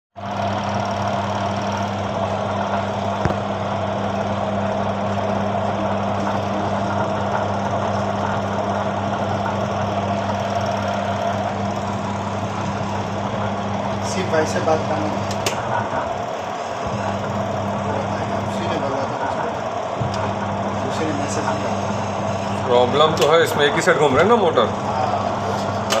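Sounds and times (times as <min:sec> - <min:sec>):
washing machine motor humming: 0:00.2 - 0:26.0.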